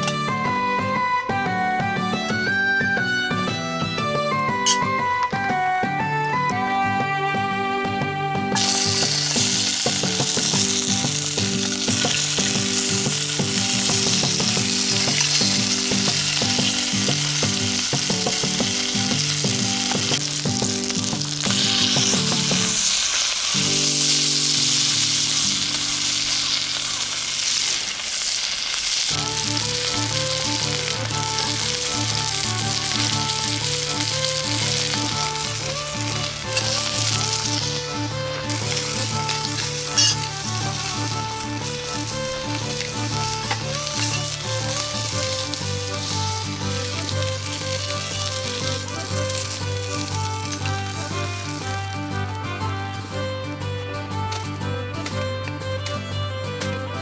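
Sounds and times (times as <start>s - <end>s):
meat sizzling in hot oil: 8.6s - 52.2s.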